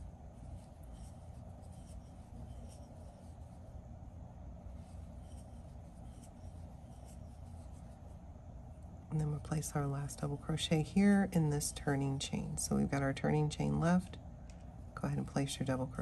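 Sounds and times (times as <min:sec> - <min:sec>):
yarn scratching and rustling: 0:00.0 - 0:03.9, 0:04.6 - 0:11.8
low steady hum: 0:00.0 - 0:16.0.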